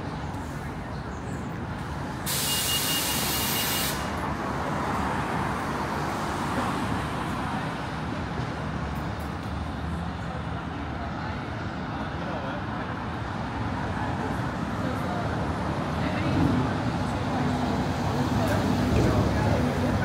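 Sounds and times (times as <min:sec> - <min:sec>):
street traffic rumbling: 0:00.0 - 0:20.0
air brakes hissing: 0:02.2 - 0:04.2.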